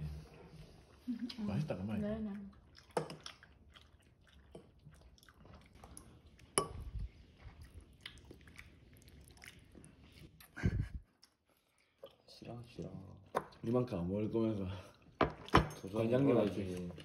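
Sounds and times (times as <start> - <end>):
person chewing: 2.5 - 12.3.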